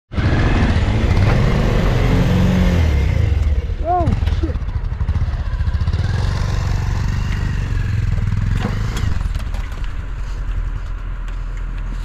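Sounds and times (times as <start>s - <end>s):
engine low rumble: 0.1s - 12.0s
knocks and rattles: 7.2s - 11.2s.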